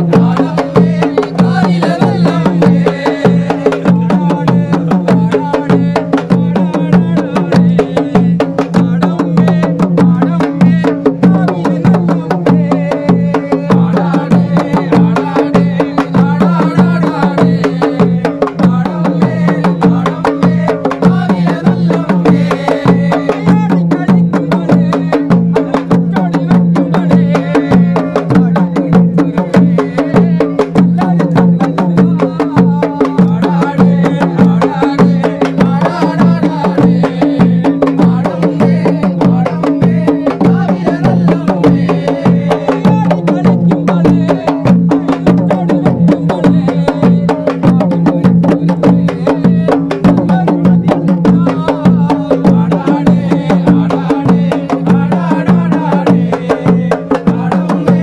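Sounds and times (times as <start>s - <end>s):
rapid ritual drumming: 0.0s - 58.0s.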